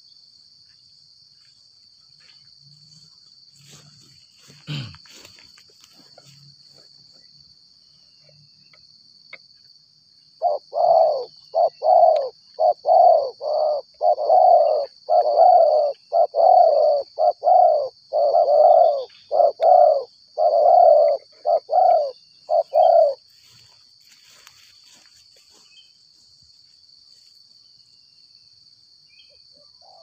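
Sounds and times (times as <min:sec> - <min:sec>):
insects humming: 0:00.0 - 0:30.0
dove cooing: 0:10.4 - 0:23.2.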